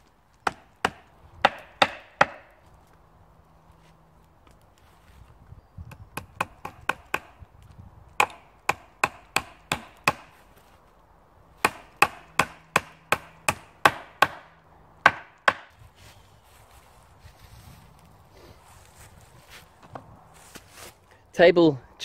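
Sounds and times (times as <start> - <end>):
axe hammering nails into wood: 0.4 - 2.5, 6.2 - 7.4, 8.2 - 10.3, 11.6 - 15.7.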